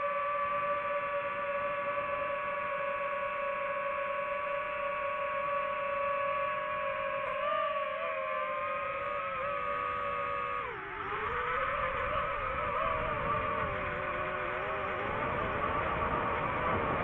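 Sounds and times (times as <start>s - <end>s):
drone propellers whining: 0.0s - 17.0s.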